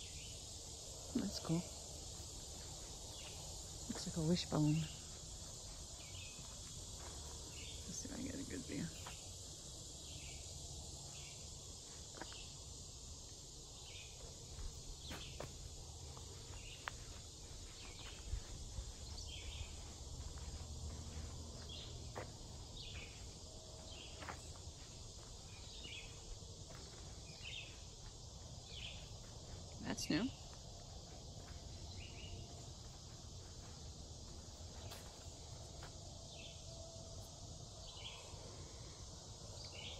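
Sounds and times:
insect chorus hissing: 0.0s - 39.9s
footsteps on dirt trail: 1.2s - 8.1s, 8.9s - 9.4s, 11.8s - 12.6s, 13.3s - 36.4s.

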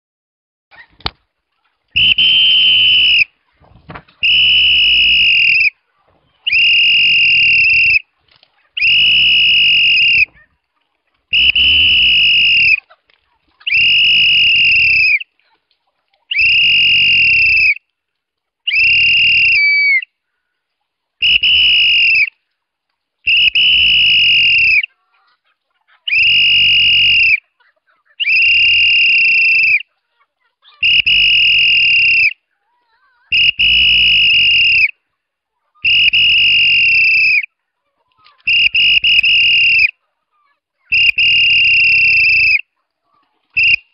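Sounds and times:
shrill whistle blasts: 2.0s - 3.3s, 4.2s - 5.8s, 6.4s - 8.0s, 8.8s - 10.4s, 11.3s - 12.8s, 13.7s - 15.3s, 16.3s - 17.8s, 18.7s - 20.1s, 21.2s - 22.4s, 23.3s - 24.9s, 26.1s - 27.4s, 28.2s - 29.8s, 30.8s - 32.4s, 33.3s - 35.0s, 35.8s - 37.5s, 38.4s - 39.9s, 40.9s - 42.7s, 43.6s - 43.9s.

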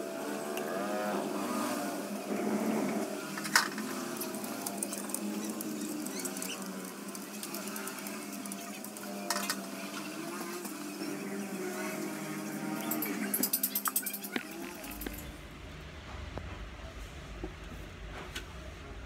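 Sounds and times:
wire rustling and ticking: 3.0s - 11.1s, 12.7s - 15.3s.

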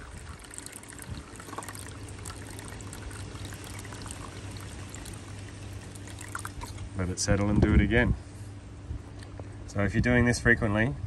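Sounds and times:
water pouring and splashing: 0.0s - 7.0s
coolant bubbling: 0.0s - 7.1s
steady low hum: 0.0s - 11.0s.

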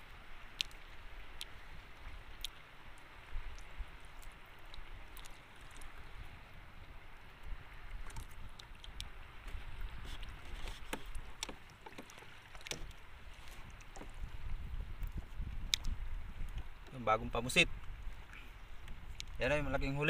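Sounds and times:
water around a boat: 0.0s - 20.0s
wind: 0.0s - 20.0s
fishing rod clicks and ticks: 0.5s - 1.6s, 8.1s - 9.1s, 15.6s - 16.6s, 19.1s - 19.4s.

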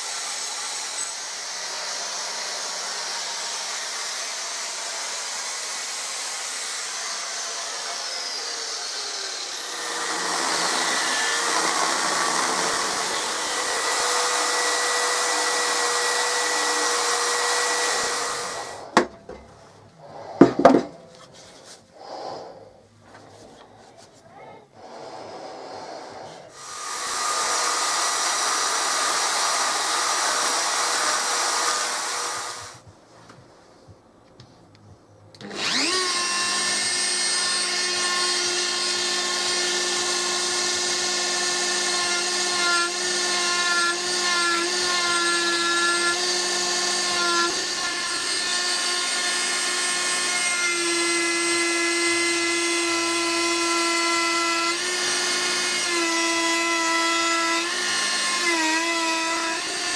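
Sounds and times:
harsh hissing power tool: 0.0s - 19.0s, 22.0s - 22.6s, 24.8s - 32.8s, 35.4s - 59.9s
rotary tool whine: 0.0s - 19.0s, 35.4s - 53.7s.

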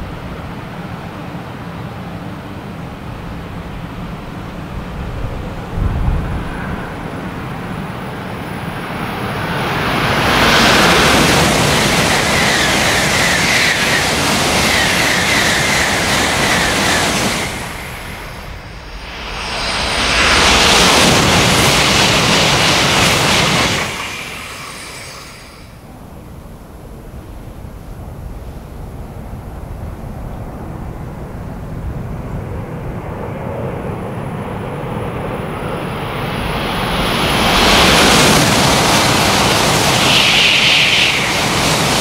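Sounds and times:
high-speed train rushing past: 0.0s - 42.0s.

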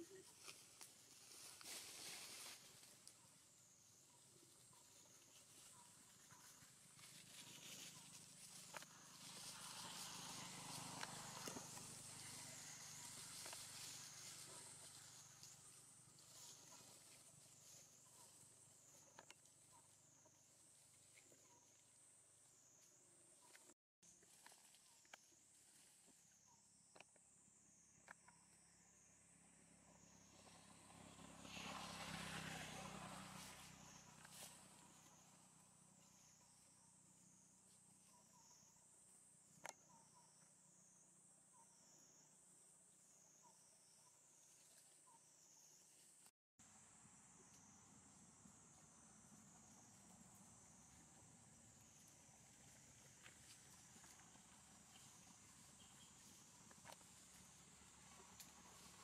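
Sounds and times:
insect chorus: 0.0s - 59.0s
distant vehicle passing: 8.9s - 15.6s, 29.6s - 35.7s.

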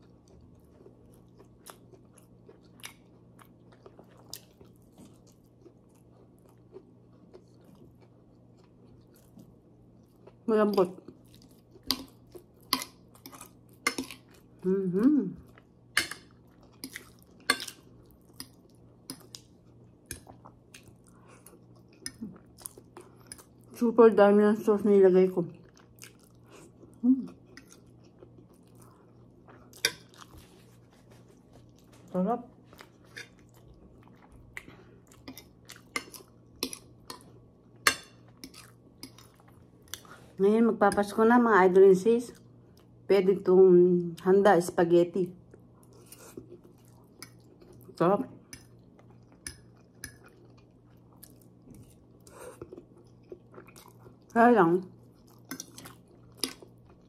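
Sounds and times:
chewing: 0.0s - 14.6s, 15.4s - 23.8s, 25.6s - 40.4s, 45.5s - 54.3s, 54.9s - 57.0s
person humming: 14.6s - 15.4s.

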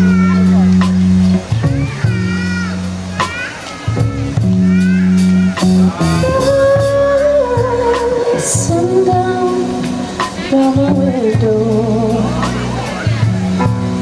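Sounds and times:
drums with cymbal hits: 0.0s - 14.0s
electric bass: 0.0s - 14.0s
electric guitar: 0.0s - 14.0s
woman singing with vibrato: 6.0s - 12.6s.

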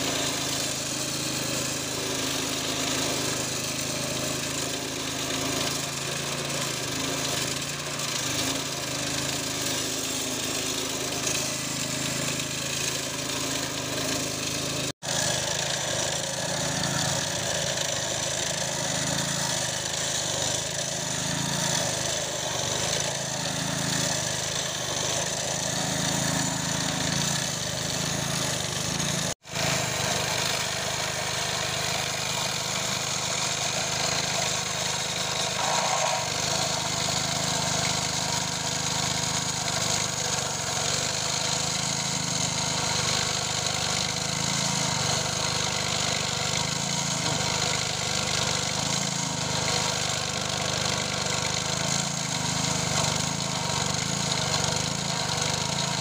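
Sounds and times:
disc grinding through steel: 7.0s - 41.1s.

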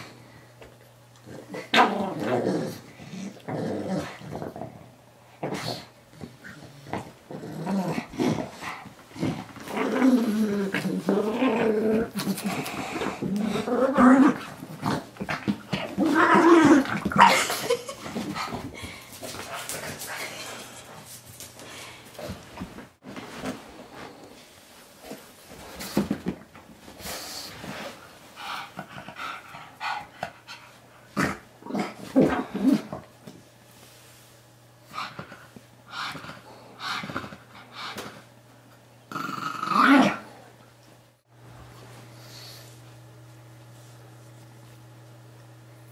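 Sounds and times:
dog growling in play: 1.2s - 18.8s, 31.1s - 33.1s, 39.1s - 40.6s.

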